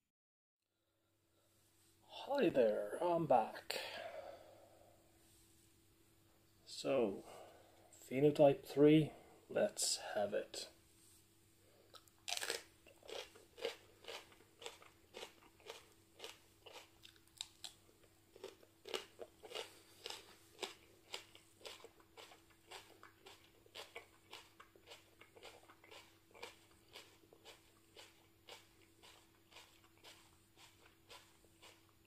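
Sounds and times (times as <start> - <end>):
person biting pepper: 11.9 - 17.8
person chewing: 11.9 - 32.0.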